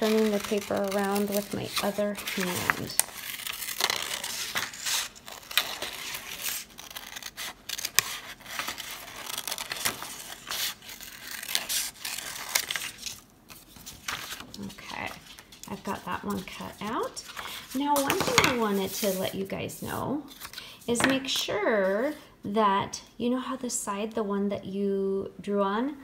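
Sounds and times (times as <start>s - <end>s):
scissors cutting paper: 0.0s - 13.2s
paper rustling: 0.0s - 22.2s.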